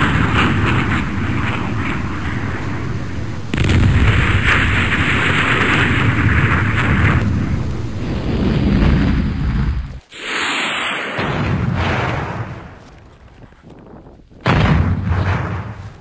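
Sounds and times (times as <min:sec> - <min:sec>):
wind buffeting microphone: 0:00.0 - 0:10.0, 0:12.2 - 0:14.6.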